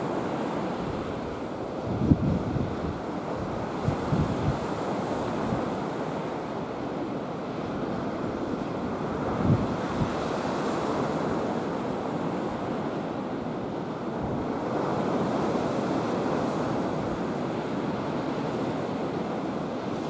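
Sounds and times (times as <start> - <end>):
wind buffeting microphone: 0.9 - 5.8, 9.0 - 10.4.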